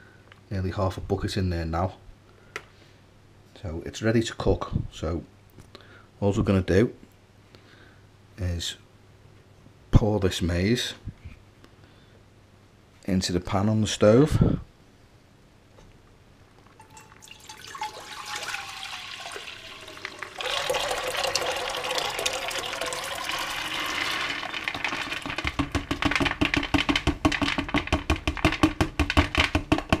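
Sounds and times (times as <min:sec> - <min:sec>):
grains splashing and glugging: 0:16.7 - 0:27.4
water pouring into metal pan: 0:16.8 - 0:26.6.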